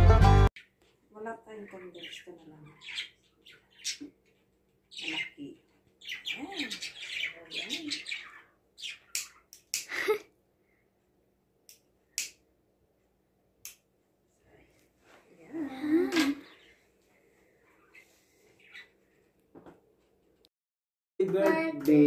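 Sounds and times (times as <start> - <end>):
high chirping ticks: 8.8 - 9.9.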